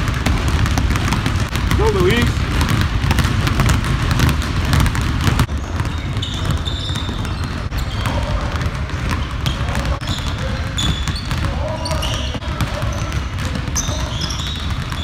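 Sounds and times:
basketballs bouncing on wooden floor: 0.0s - 15.0s
short high squeaks: 5.9s - 8.1s, 9.5s - 12.4s.

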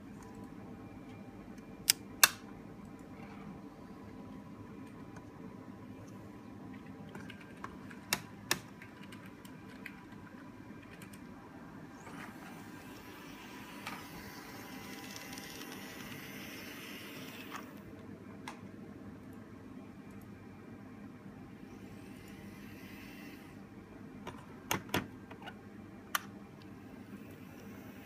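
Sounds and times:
model train motor whirring: 12.3s - 17.7s.

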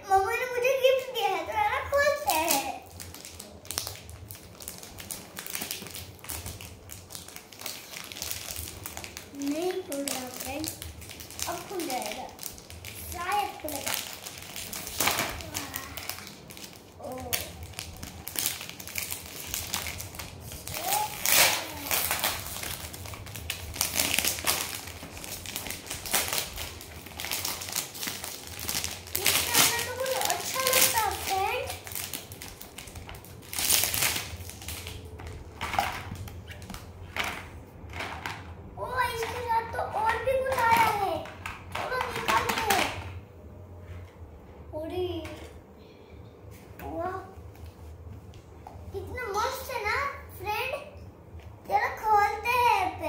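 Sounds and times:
plastic wrapping crinkling: 1.9s - 43.2s.

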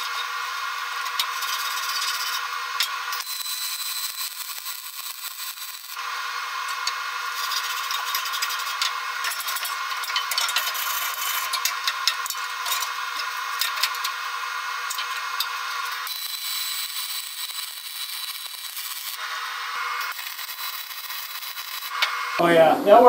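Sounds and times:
welding arc hissing: 0.0s - 23.0s
wire brush scrubbing metal: 1.0s - 2.5s, 6.7s - 14.2s.

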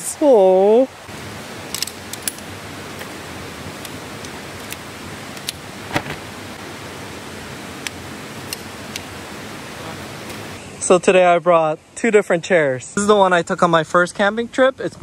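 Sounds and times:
steady rushing noise: 1.0s - 10.6s.

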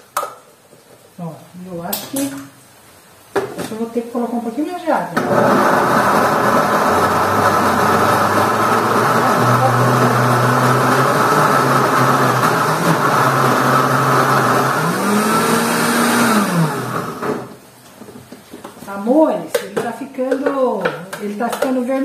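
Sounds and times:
blender running: 5.2s - 17.6s.

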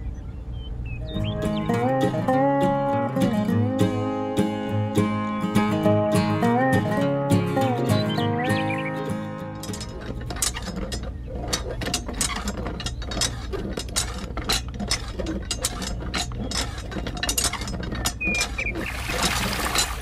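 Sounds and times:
gears clicking and rattling: 9.5s - 20.0s.

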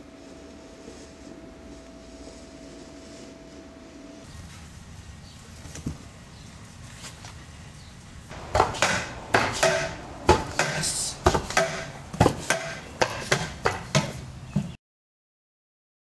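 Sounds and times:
pogo stick clanking: 8.3s - 14.2s.

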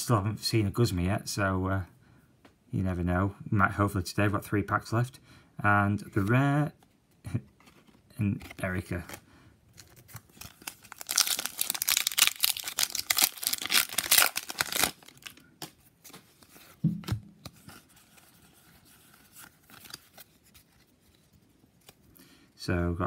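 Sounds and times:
foil wrapper tearing and crinkling: 9.8s - 15.8s, 19.3s - 20.5s.

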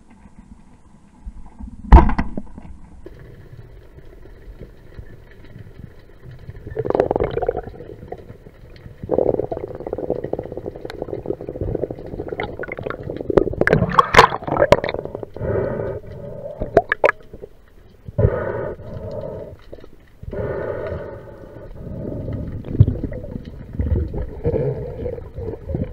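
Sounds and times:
water sloshing and gurgling: 1.4s - 25.9s
breaths through snorkel: 14.0s - 17.2s, 18.2s - 23.2s.

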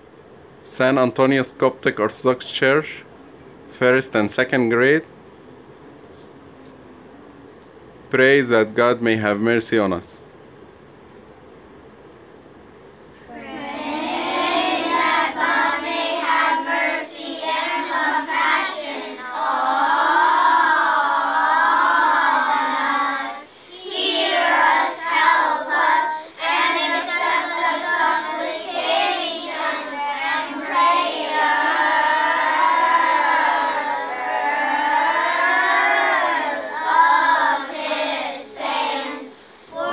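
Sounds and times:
children singing a hymn: 13.3s - 39.9s.

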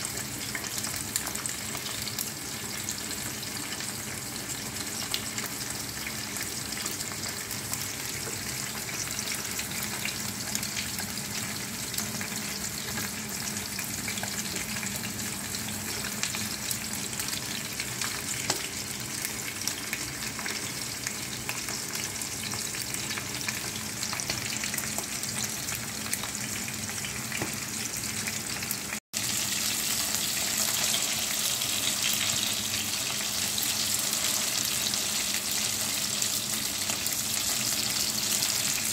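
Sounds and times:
fish frying in hot oil: 0.0s - 38.9s.

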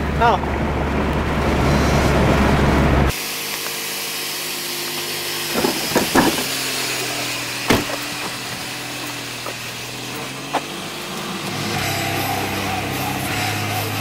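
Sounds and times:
car engine idling: 5.0s - 14.0s
sharp knocks: 5.5s - 6.5s, 7.7s - 8.4s.

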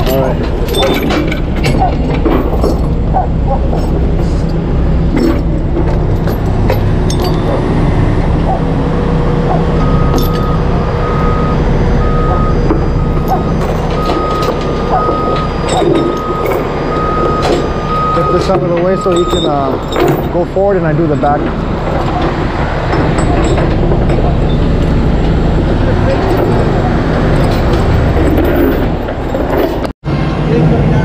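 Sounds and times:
metallic clinks: 0.0s - 3.0s, 6.2s - 7.6s, 9.8s - 10.6s, 13.1s - 20.4s
diesel truck engine running: 0.0s - 31.0s
reversing alarm beeping: 9.4s - 20.7s.

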